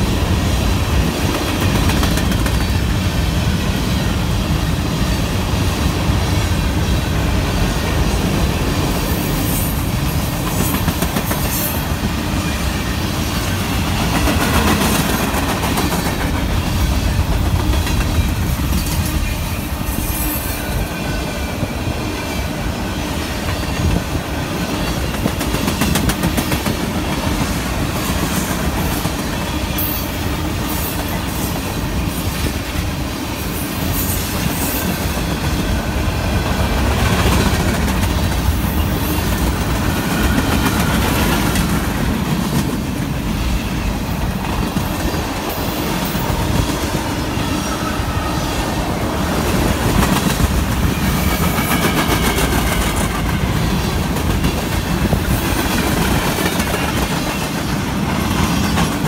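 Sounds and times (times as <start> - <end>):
train wheels rumbling on rails: 0.0 - 59.0
wheels clacking over rail joints: 1.0 - 3.0.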